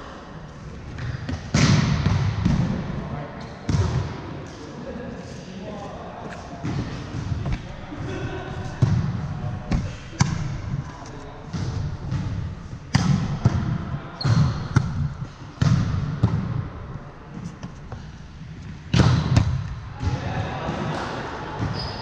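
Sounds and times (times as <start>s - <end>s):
players' voices echoing: 0.0s - 22.0s
volleyball slaps and thuds: 1.0s - 2.8s, 8.7s - 10.8s, 11.5s - 16.7s, 18.9s - 20.1s
sneaker squeak: 14.2s - 14.8s, 21.6s - 22.0s.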